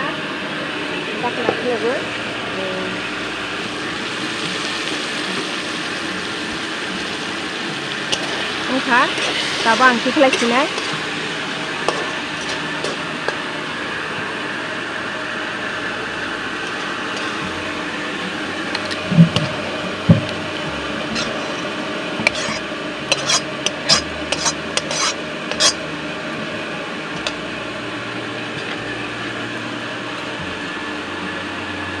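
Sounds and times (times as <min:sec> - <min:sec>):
steady sizzling hiss: 0:01.2 - 0:32.0
metal spatula scraping a pan: 0:08.1 - 0:11.2, 0:11.8 - 0:13.1, 0:16.7 - 0:17.4, 0:21.0 - 0:25.8.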